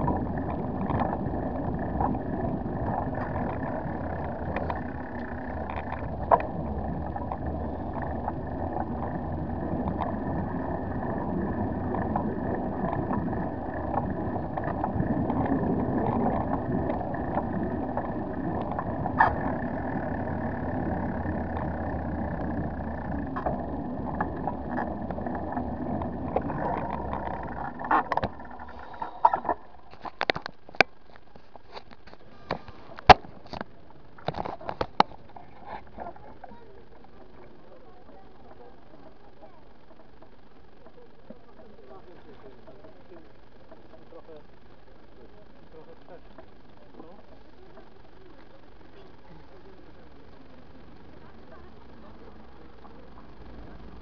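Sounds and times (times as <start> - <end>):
bicycle rolling and rattling: 0.0 - 41.0.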